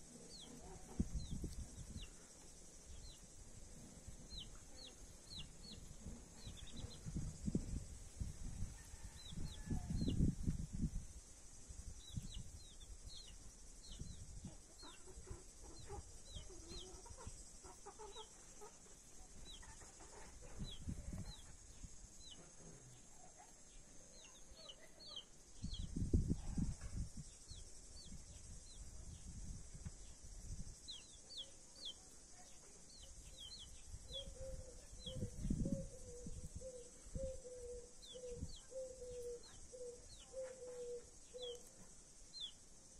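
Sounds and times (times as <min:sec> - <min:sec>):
steady high hiss: 0:00.0 - 0:26.4, 0:40.9 - 0:42.9
wind rumble on microphone: 0:00.3 - 0:02.2, 0:02.9 - 0:17.2, 0:20.2 - 0:22.3, 0:25.5 - 0:30.9, 0:33.0 - 0:39.4
chicks peeping: 0:04.2 - 0:07.6, 0:12.0 - 0:21.5.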